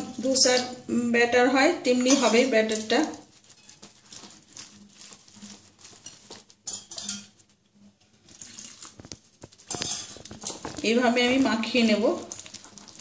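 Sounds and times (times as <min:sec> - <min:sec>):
whisk scraping glass bowl: 0:02.0 - 0:07.4, 0:09.6 - 0:13.0.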